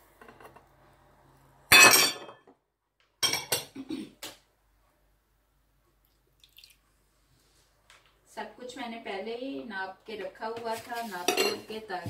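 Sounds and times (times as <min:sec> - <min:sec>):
kitchenware clattering on steel bowl: 0:01.7 - 0:02.4, 0:03.2 - 0:03.8, 0:11.2 - 0:11.8.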